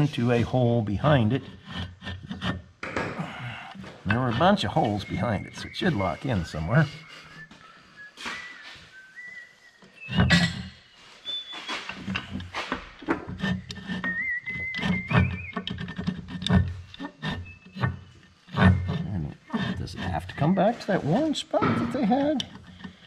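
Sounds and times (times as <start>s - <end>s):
person whistling a tune: 4.8s - 11.9s, 14.0s - 16.1s
metal clicks and clunks: 10.0s - 10.8s, 11.7s - 20.1s, 21.1s - 23.0s.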